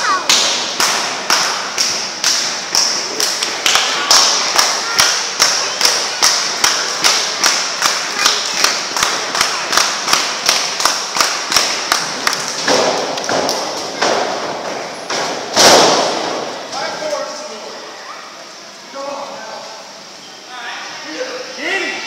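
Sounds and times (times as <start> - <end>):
rhythmic hand claps: 0.2 - 14.1.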